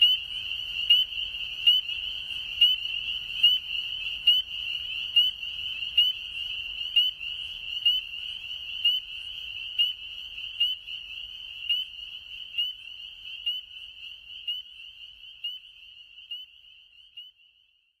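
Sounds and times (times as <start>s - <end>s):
spring peepers chorus: 0.0s - 18.0s.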